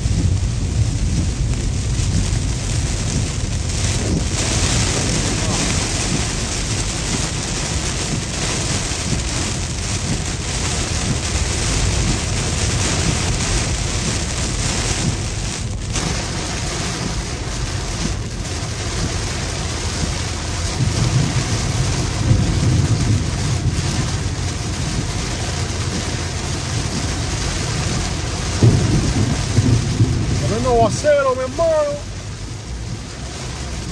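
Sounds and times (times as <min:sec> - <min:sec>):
heavy rain on a car: 0:00.0 - 0:33.9
low thunder rumble: 0:00.0 - 0:33.9.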